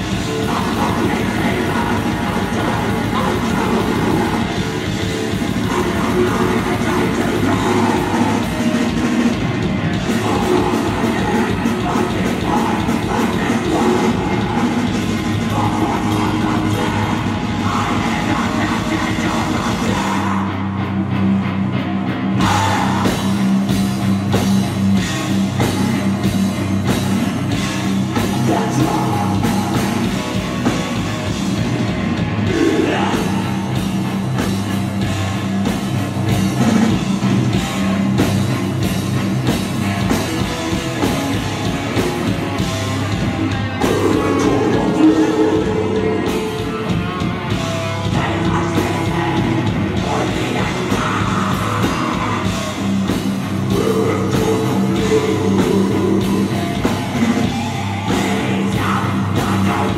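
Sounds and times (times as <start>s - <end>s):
vocals through a pa: 0.0s - 20.9s, 22.4s - 23.9s, 27.0s - 31.1s, 32.4s - 34.6s, 43.6s - 59.9s
distorted guitars and bass: 0.0s - 59.9s
fast dense drumming: 0.0s - 59.9s.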